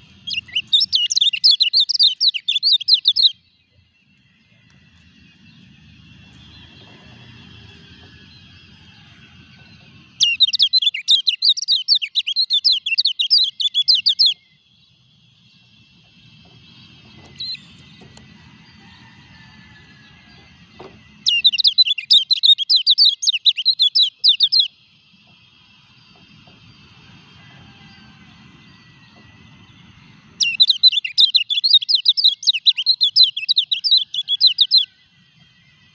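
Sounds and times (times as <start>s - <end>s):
bird chattering song: 0.0s - 4.2s, 9.6s - 18.8s, 20.4s - 26.4s, 28.6s - 35.9s.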